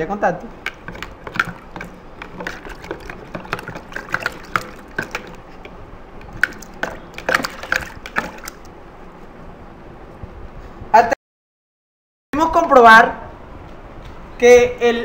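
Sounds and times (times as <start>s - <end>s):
water sloshing: 0.5s - 8.9s
metal utensil tapping plastic jug: 0.6s - 8.7s.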